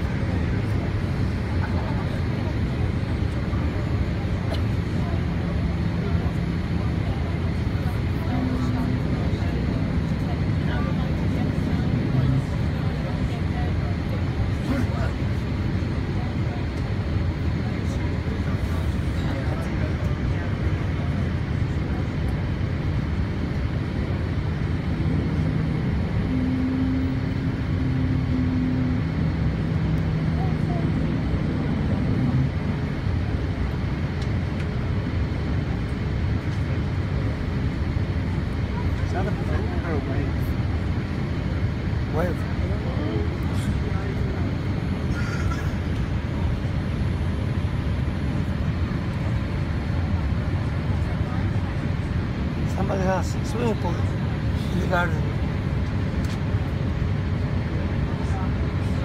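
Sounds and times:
airliner cabin engine rumble: 0:00.0 - 0:59.0
higher steady hum: 0:00.0 - 0:59.0.

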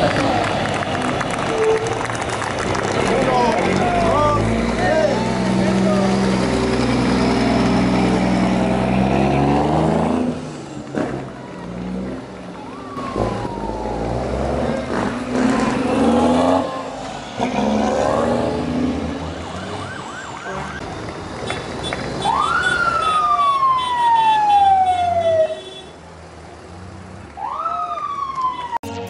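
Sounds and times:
passing engine noise: 0:00.0 - 0:21.4
vehicle siren sweeping: 0:12.6 - 0:17.1, 0:17.9 - 0:20.8, 0:22.2 - 0:25.5, 0:27.4 - 0:29.0.

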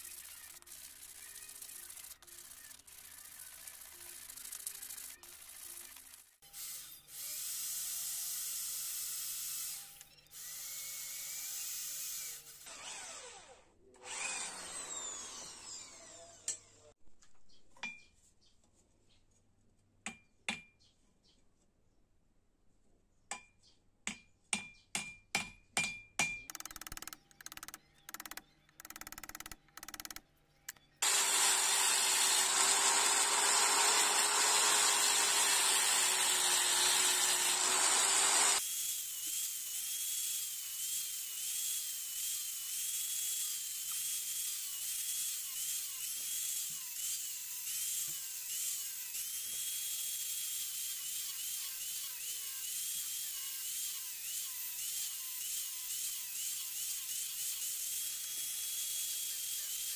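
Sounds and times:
hammer striking steel on anvil: 0:24.1 - 0:26.4
angle grinder sanding: 0:31.0 - 0:39.6.

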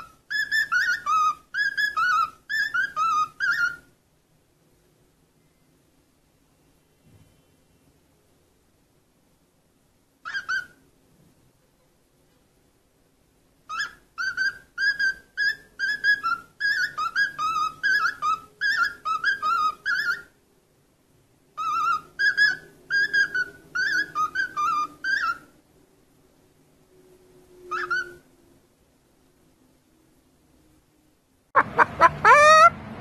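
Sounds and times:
cockatiel whistling: 0:00.0 - 0:03.9, 0:10.3 - 0:10.8, 0:13.7 - 0:20.3, 0:21.6 - 0:25.5, 0:27.7 - 0:28.2.

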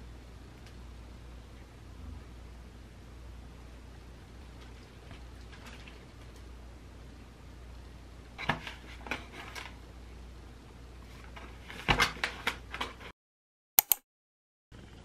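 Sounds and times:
sharp clicks: 0:13.8 - 0:14.0.

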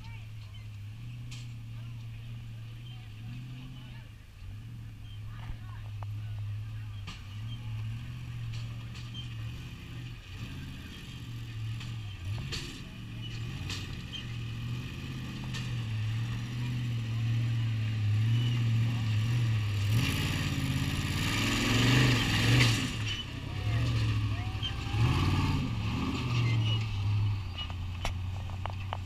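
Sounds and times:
buggy engine revving: 0:00.0 - 0:29.0.

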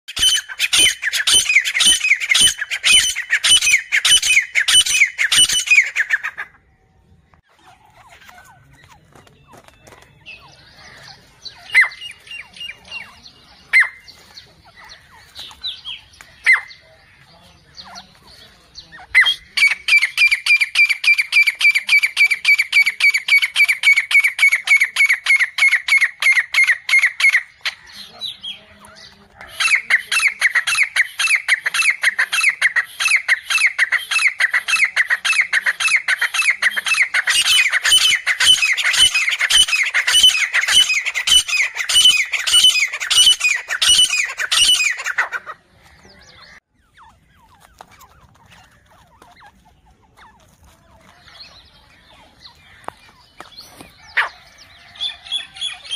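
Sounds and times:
francolin calling: 0:18.8 - 0:50.4.

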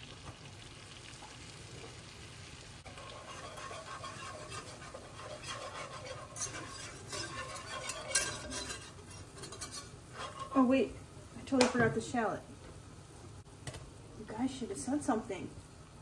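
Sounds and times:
butter sizzling in a pan: 0:00.0 - 0:16.0
whisk tapping a pan: 0:02.8 - 0:10.7
whisk scraping a pan: 0:02.8 - 0:10.8.

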